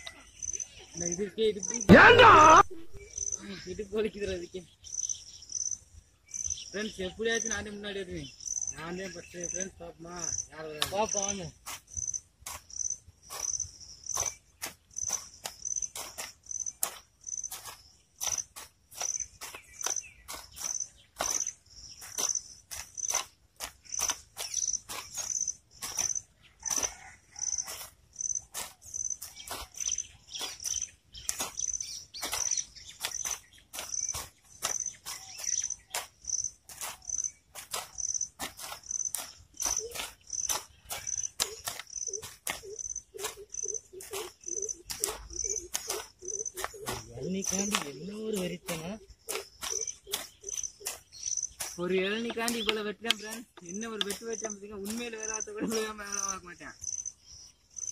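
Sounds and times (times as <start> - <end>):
insects chirping: 0.0 - 57.9
sharp knocks and clicks: 44.0 - 55.4.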